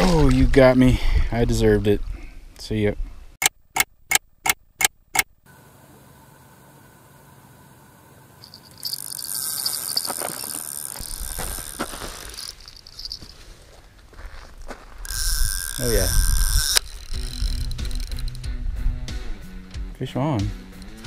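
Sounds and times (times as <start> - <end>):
sharp clicks: 3.4 - 5.3, 15.1 - 18.4
fishing reel line clicker buzzing: 8.4 - 13.1, 15.0 - 18.4.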